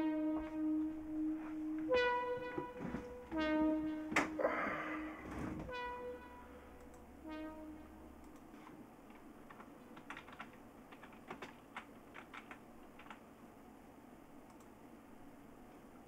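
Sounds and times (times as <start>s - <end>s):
faint room hiss: 0.0s - 16.0s
keyboard typing: 6.8s - 13.2s.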